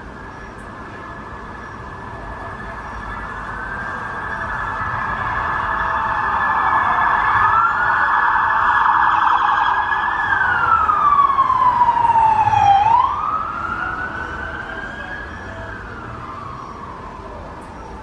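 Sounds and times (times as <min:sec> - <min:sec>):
siren wailing: 0:01.0 - 0:18.0.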